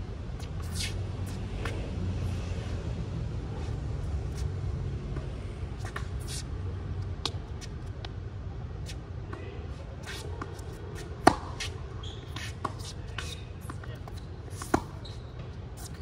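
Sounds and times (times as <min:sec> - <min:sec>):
low traffic hum: 0:00.0 - 0:16.0
shoe scuffs on court: 0:00.4 - 0:01.9, 0:03.5 - 0:06.6, 0:08.8 - 0:16.0
sharp tennis ball impact: 0:11.2 - 0:11.8.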